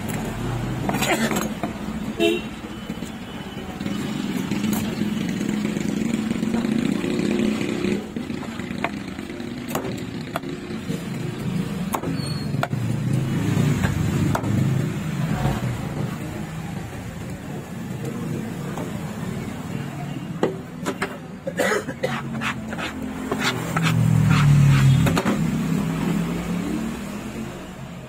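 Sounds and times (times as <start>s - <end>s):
knife chopping fish on wood: 9.6s - 10.6s
passing vehicle engines hum: 22.2s - 28.0s.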